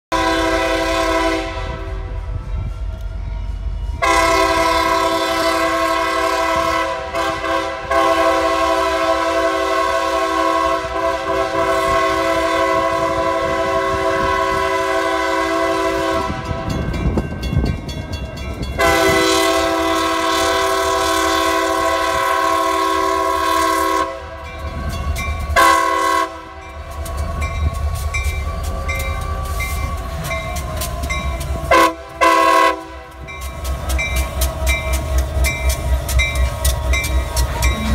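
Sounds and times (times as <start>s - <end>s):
locomotive air horn blasts: 0.1s - 2.4s, 4.0s - 16.8s, 18.8s - 24.5s, 25.4s - 27.7s, 29.2s - 33.4s
locomotive engine rumbling: 0.1s - 37.9s.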